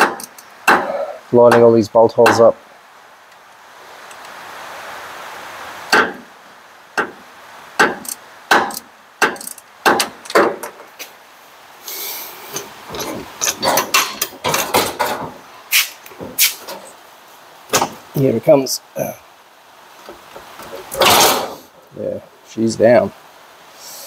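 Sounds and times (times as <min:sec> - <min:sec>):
hand tools clinking on bolts: 0:12.5 - 0:15.8, 0:20.6 - 0:21.6.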